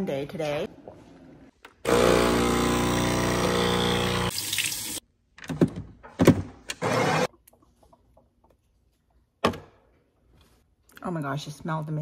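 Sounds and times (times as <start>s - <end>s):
coffee grinder grinding beans: 1.9s - 4.4s.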